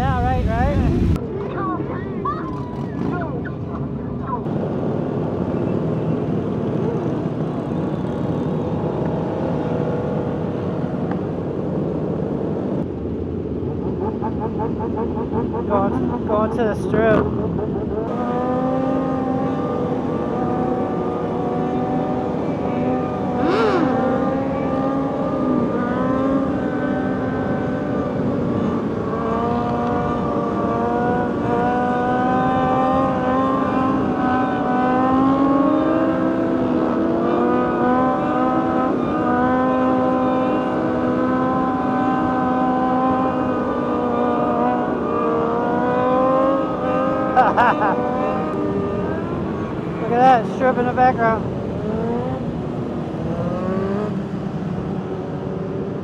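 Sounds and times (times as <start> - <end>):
motorcycle engines cruising: 0.0 - 56.0.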